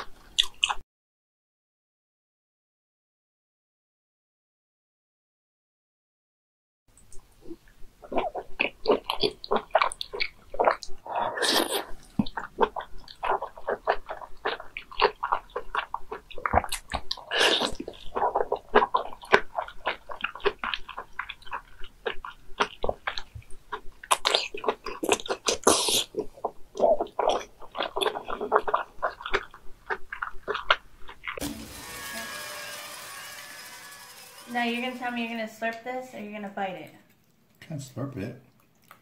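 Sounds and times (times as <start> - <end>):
squelchy chewing: 0.0 - 0.8, 7.0 - 31.4, 37.0 - 39.0
lip smacks: 0.1 - 0.8, 7.0 - 31.4, 38.4 - 39.0
slurping: 7.4 - 31.5.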